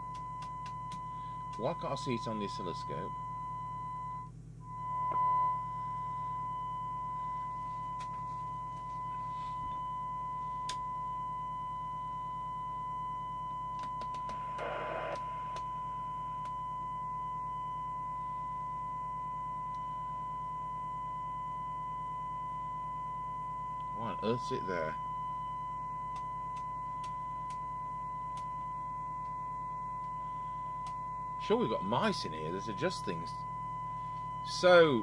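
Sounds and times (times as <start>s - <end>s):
low hum: 0.0s - 35.0s
test tone through radio speaker: 0.0s - 35.0s.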